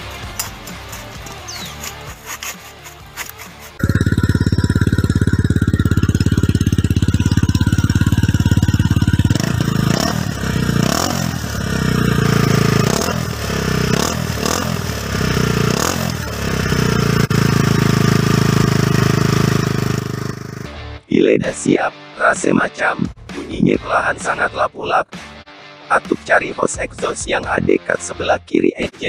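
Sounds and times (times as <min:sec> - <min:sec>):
motorcycle engine idling and revving: 0:00.0 - 0:20.8.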